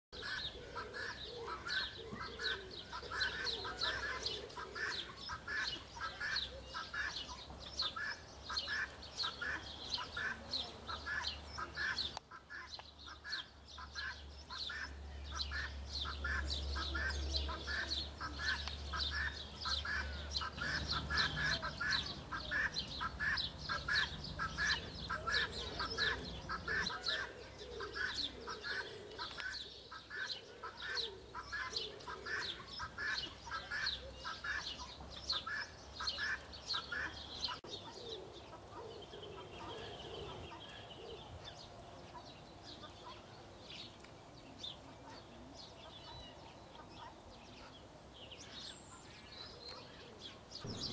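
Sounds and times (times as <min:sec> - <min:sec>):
birds calling: 0:00.1 - 0:50.9
low rumble: 0:50.6 - 0:50.9.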